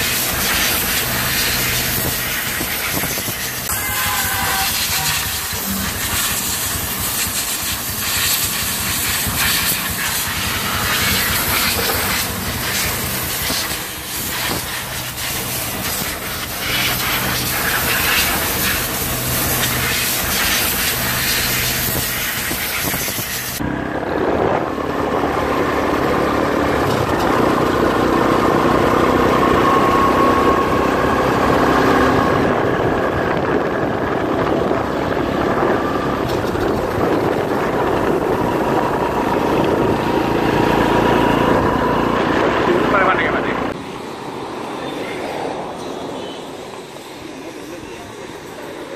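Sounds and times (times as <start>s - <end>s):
pressure washer spraying water: 0.0s - 23.6s
quad bike engine running: 0.0s - 43.7s
wind noise on microphone: 0.0s - 43.8s.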